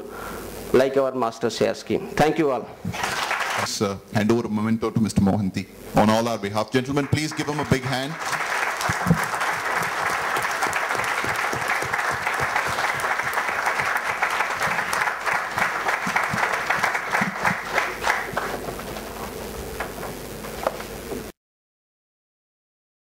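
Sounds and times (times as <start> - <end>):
audience applauding: 3.0 - 3.7, 6.7 - 20.8.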